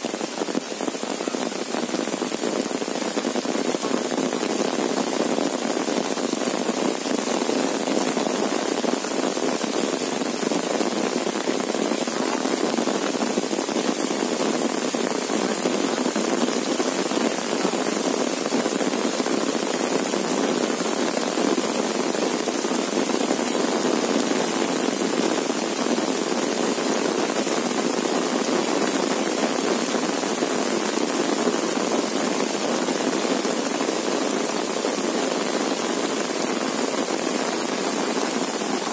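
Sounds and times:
heavy rain on an umbrella: 0.0s - 38.9s.

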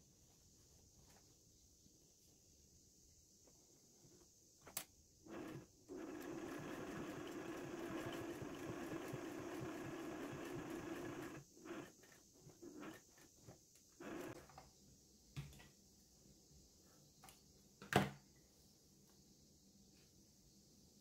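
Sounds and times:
sewing machine stitching: 5.3s - 13.4s, 14.0s - 14.5s.

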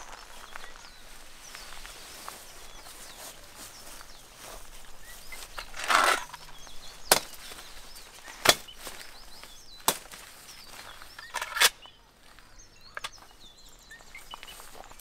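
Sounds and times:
foliage rustling: 0.0s - 11.4s
birds chirping: 0.0s - 15.0s
blade cutting stems: 5.6s - 7.5s.

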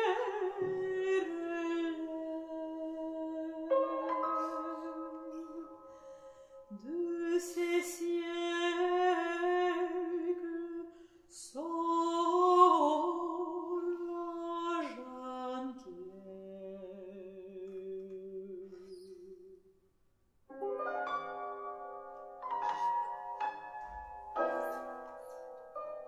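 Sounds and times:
piano accompaniment: 0.0s - 10.5s, 20.5s - 26.0s
woman singing classical song: 0.0s - 19.7s.

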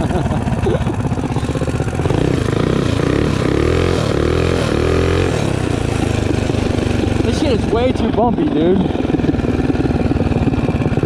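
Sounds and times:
small motorbike engine revving: 0.0s - 11.0s.

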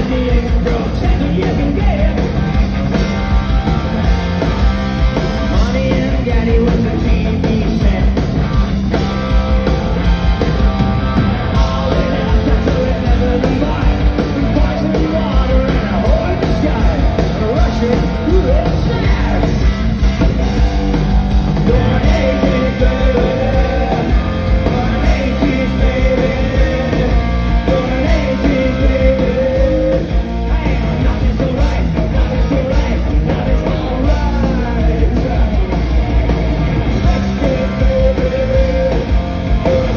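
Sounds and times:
live rock band playing: 0.0s - 39.9s
person singing: 11.6s - 19.7s, 21.6s - 35.8s.

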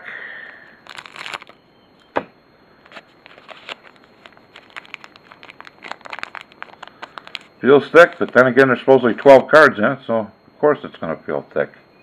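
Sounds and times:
foil wrapper crinkling: 0.7s - 1.6s, 2.8s - 8.5s.

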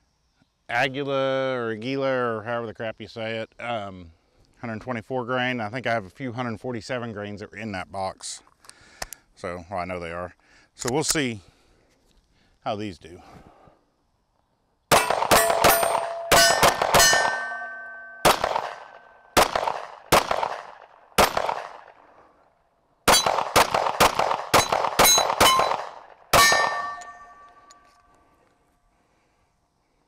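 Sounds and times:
bullets ringing on steel plates: 14.9s - 19.2s, 23.1s - 23.4s, 24.6s - 27.8s
pistol shots: 14.9s - 22.1s, 23.0s - 27.6s.

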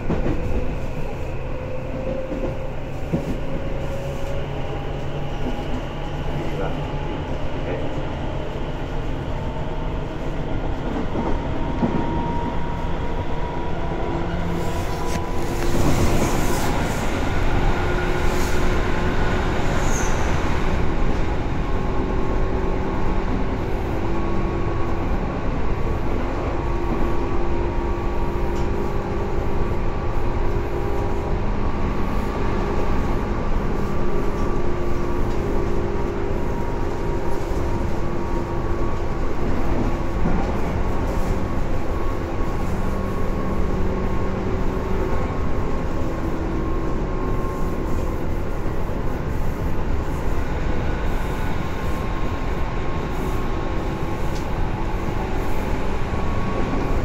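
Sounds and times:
train wheels rumbling on rail: 0.0s - 57.0s
high squeal: 19.8s - 20.4s.

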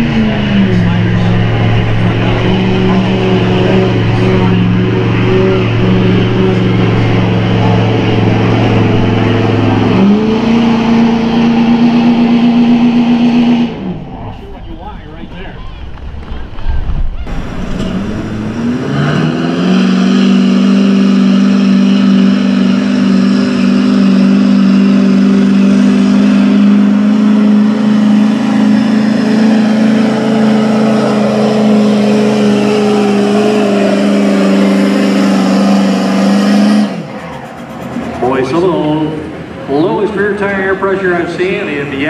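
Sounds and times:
truck diesel engine under full load: 0.0s - 42.0s.

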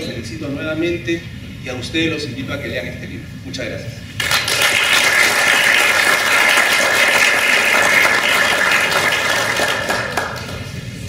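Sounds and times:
audience applauding: 4.2s - 10.8s.

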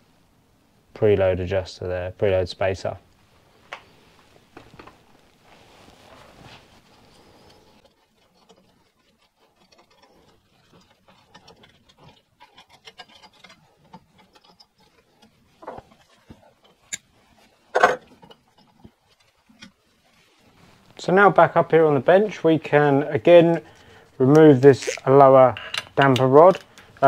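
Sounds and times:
metal clicks and rattles: 7.5s - 19.8s.

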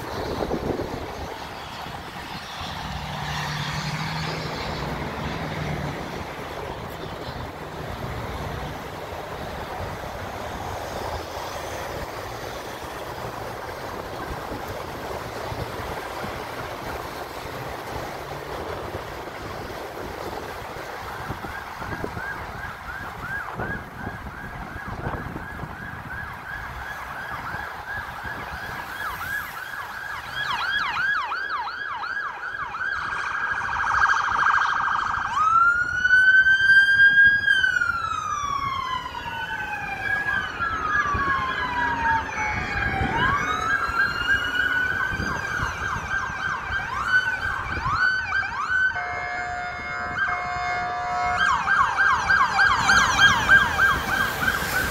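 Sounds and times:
police siren: 0.0s - 54.9s.

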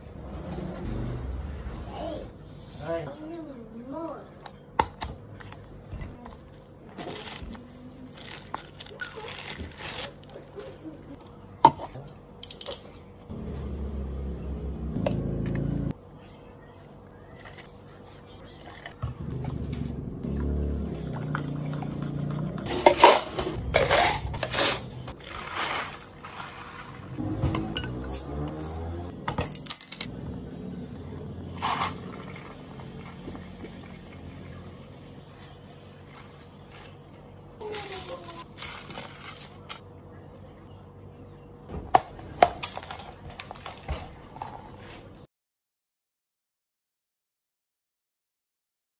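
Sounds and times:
ice cubes clattering into cups: 22.7s - 27.2s, 31.5s - 33.1s.

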